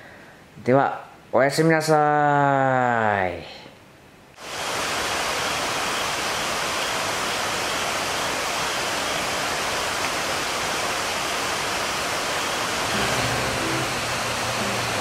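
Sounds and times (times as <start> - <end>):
river rushing: 4.4 - 15.0.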